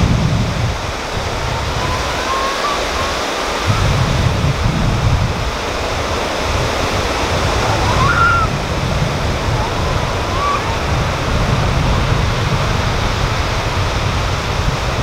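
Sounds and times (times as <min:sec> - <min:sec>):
small waves washing onto shore: 0:00.0 - 0:15.0
wind buffeting microphone: 0:00.0 - 0:15.0
faint thin whistle gliding up: 0:01.5 - 0:03.8, 0:07.6 - 0:08.5, 0:09.5 - 0:10.9.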